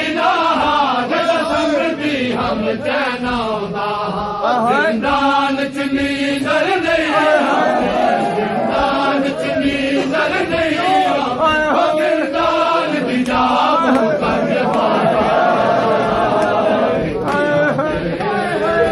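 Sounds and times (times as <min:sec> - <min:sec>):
men chanting in chorus: 0:00.0 - 0:18.9
hands slapping on bare chests: 0:13.2 - 0:15.0.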